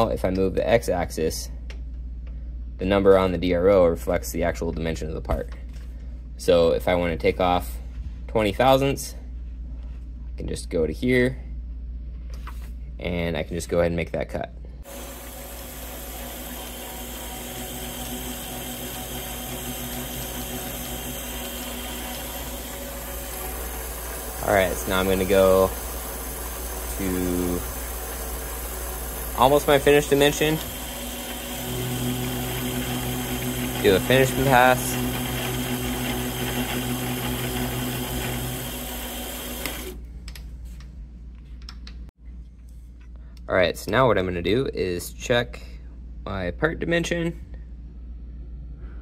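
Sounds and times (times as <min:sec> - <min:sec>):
milling machine cutting: 0:14.9 - 0:40.0.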